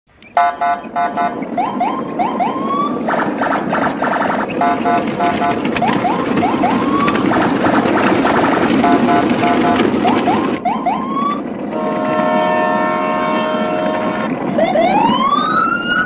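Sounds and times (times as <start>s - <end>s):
rapid beeping blasts: 0.3s - 11.2s
rising siren whoops: 0.4s - 3.2s, 4.6s - 7.6s, 8.8s - 13.0s, 13.8s - 16.0s
rumbling hum: 0.5s - 15.8s.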